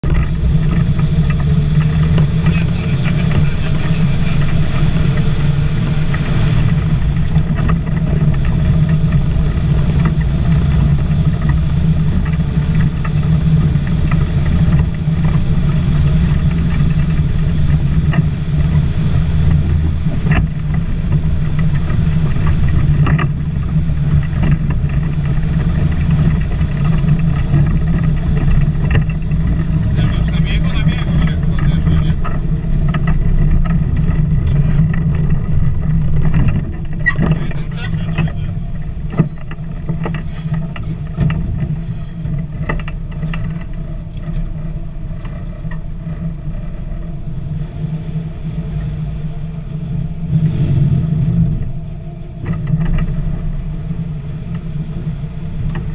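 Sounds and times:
truck engine running: 0.0 - 55.9.

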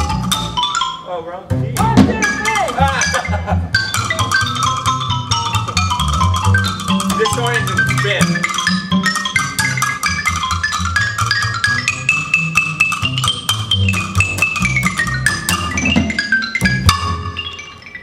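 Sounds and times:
xylophone fast runs: 0.0 - 1.2, 1.8 - 18.0
plucked upright bass: 0.0 - 17.3
small drum kit: 1.5 - 9.8, 12.9 - 17.1.

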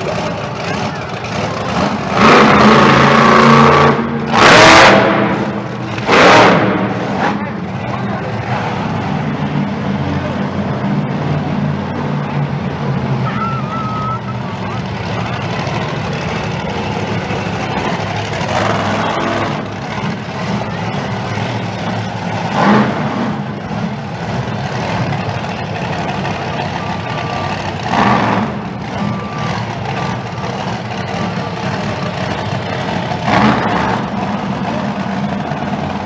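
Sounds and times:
big truck engine revving: 0.0 - 36.0.

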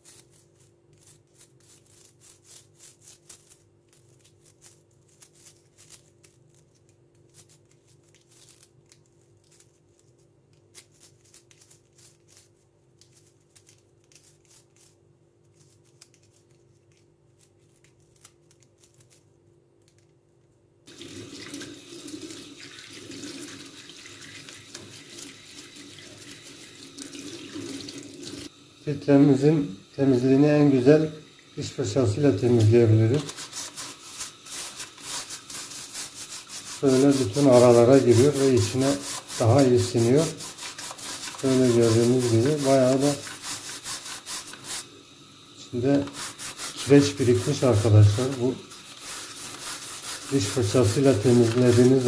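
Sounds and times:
toothbrush scrubbing plastic: 0.0 - 19.3, 20.9 - 28.4, 31.6 - 44.9, 45.6 - 52.0
tap water running into sink: 20.9 - 28.5, 29.3 - 52.0.

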